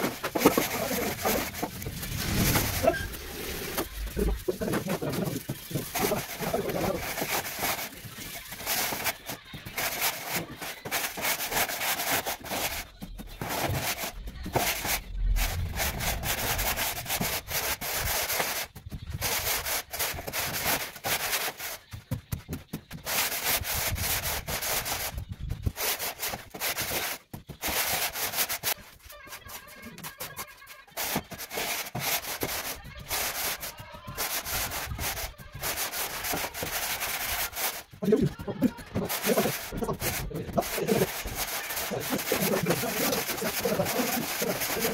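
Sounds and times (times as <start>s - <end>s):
hand trowel working mortar: 0.0s - 44.9s
straightedge scraping mortar: 31.0s - 44.9s.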